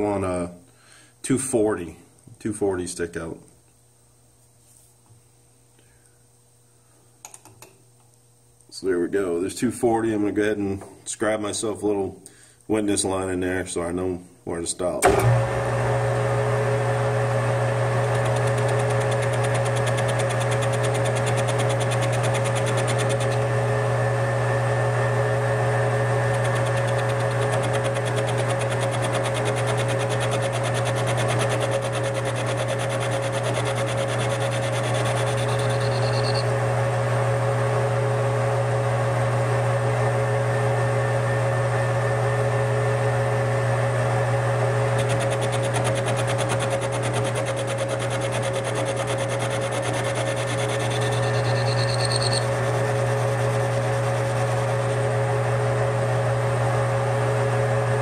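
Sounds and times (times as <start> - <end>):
metal lathe humming and whining: 17.3 - 23.6, 25.4 - 36.8, 44.8 - 55.4
cutting tool on spinning metal: 17.9 - 23.5, 25.8 - 36.6, 44.8 - 55.1.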